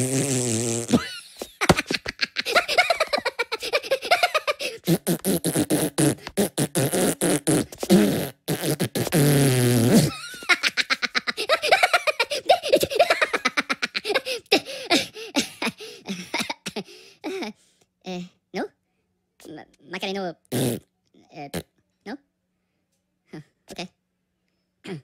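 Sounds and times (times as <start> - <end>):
long fart sound falling in pitch: 0.0 - 1.2, 4.8 - 10.2, 20.5 - 20.8
cartoon voices giggling and laughing: 0.9 - 5.0, 10.1 - 17.6.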